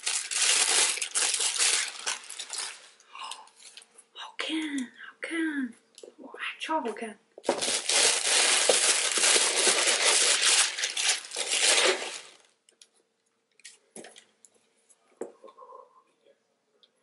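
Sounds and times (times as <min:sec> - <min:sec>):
tissue paper crinkling and rustling: 0:00.0 - 0:03.0, 0:07.4 - 0:12.5.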